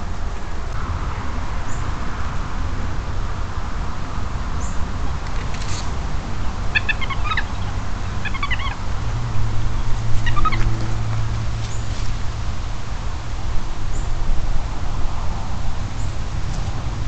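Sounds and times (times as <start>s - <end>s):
steady low rumble and hiss: 0.0s - 17.0s
high chirping animal calls: 6.7s - 8.8s, 10.2s - 10.6s.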